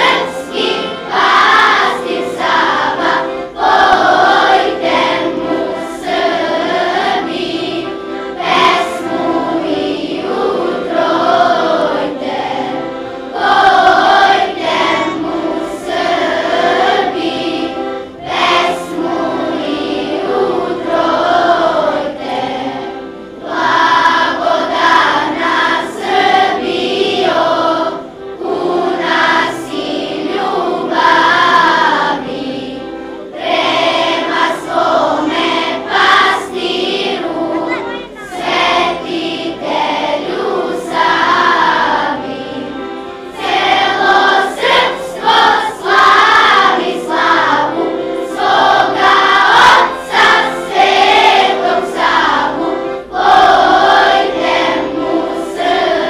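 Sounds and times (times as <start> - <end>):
children's choir singing: 0.0 - 56.0.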